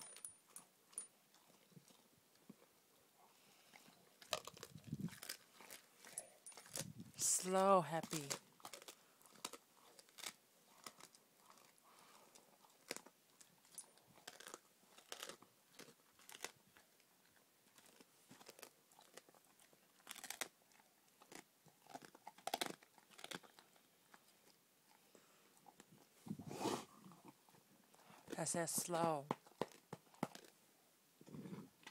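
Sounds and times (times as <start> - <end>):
dog crunching bones: 3.7 - 26.1, 27.0 - 30.6.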